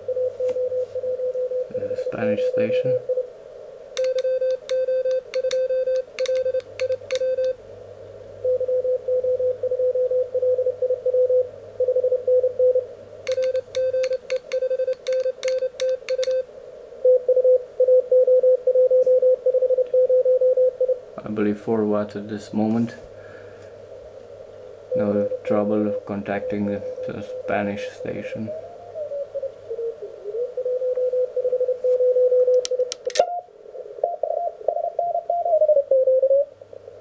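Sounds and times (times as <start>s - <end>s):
morse code tone: 4.0s - 7.6s, 11.2s - 16.5s
telegraph key clicks: 4.0s - 7.6s, 13.3s - 16.4s, 32.6s - 33.3s.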